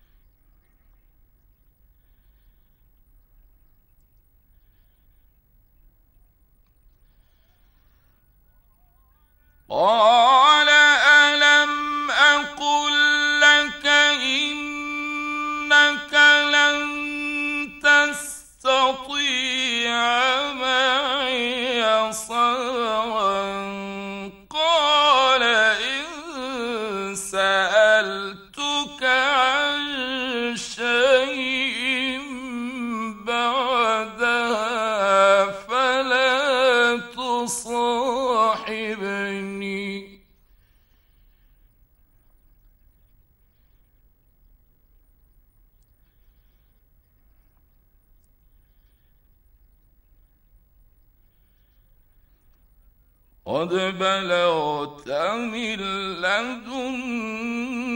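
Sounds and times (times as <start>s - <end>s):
man reciting melodically: 9.6s - 40.4s, 53.4s - 57.9s.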